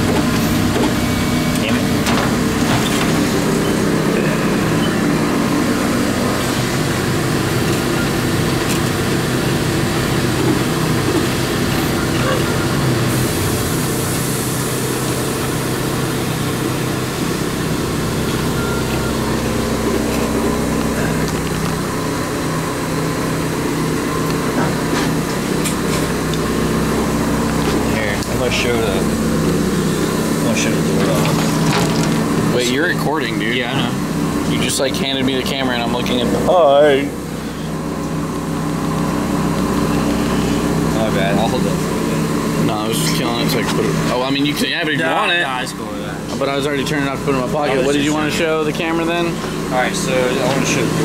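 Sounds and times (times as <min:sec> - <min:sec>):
deeper hum: 0:00.0 - 0:44.6
three d printer humming: 0:00.0 - 0:51.0.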